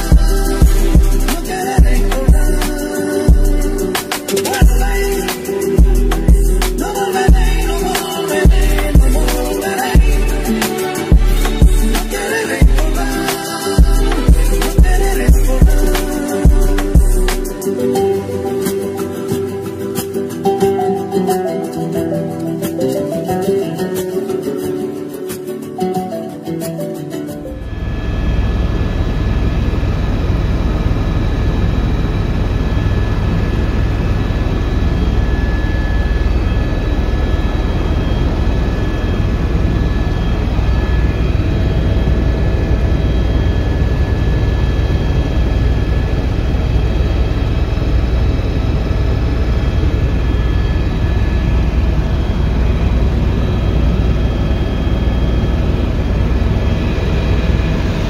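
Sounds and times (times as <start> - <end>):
thin high whine: 0.0 - 58.0
helicopter rotor and engine rumble: 27.6 - 58.0.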